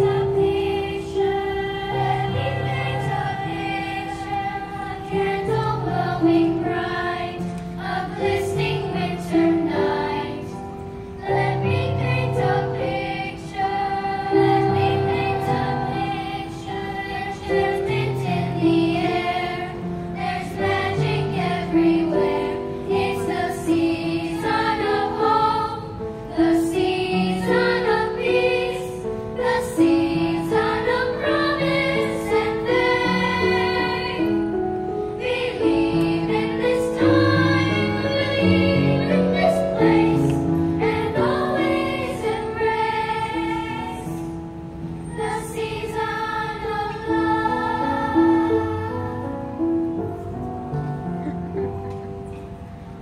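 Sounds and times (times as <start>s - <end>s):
children's choir singing: 0.0s - 53.0s.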